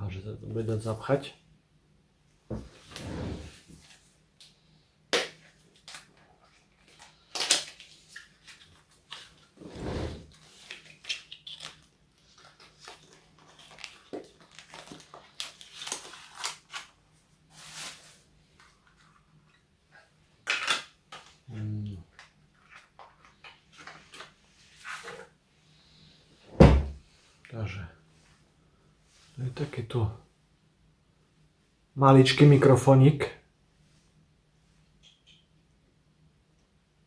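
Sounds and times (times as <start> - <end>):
packaging crinkling and rustling: 5.4 - 9.6, 10.2 - 19.1.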